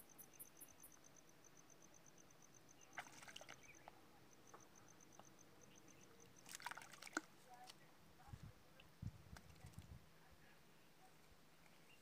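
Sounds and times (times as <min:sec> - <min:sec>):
insect chirping: 0:00.0 - 0:07.0.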